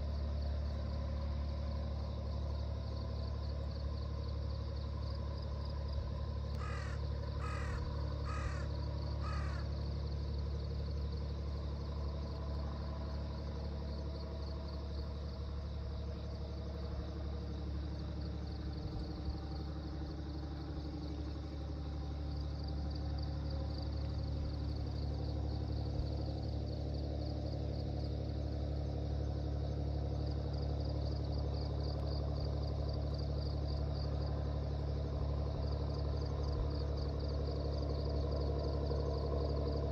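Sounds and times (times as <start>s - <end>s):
crow cawing: 6.6s - 9.7s.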